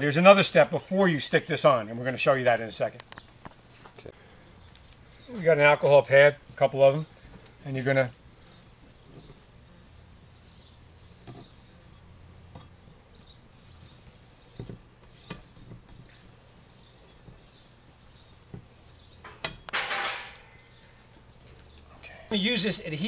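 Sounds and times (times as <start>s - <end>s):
pad rubbing a step surface: 8.0s - 12.0s, 13.5s - 20.3s.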